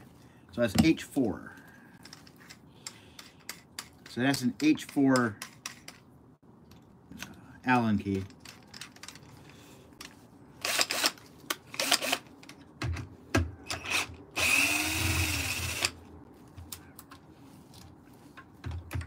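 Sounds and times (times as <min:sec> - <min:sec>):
drill motor running: 0:10.6 - 0:11.2, 0:13.8 - 0:16.0
drill chuck clicking: 0:10.7 - 0:12.6, 0:13.7 - 0:16.0.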